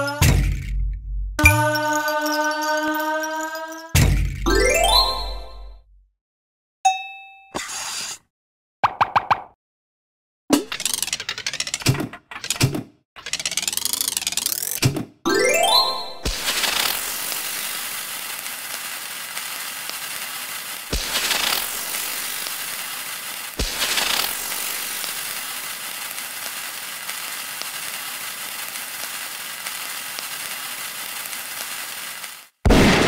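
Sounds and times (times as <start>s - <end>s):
fine crackling rattle: 16.3s - 32.4s.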